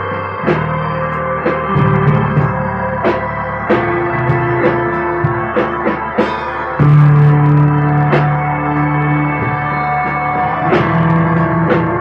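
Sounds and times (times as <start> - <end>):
drum and cymbal hit: 0.0 - 8.6
electric bass line: 0.0 - 12.0
rock band playing: 0.0 - 12.0.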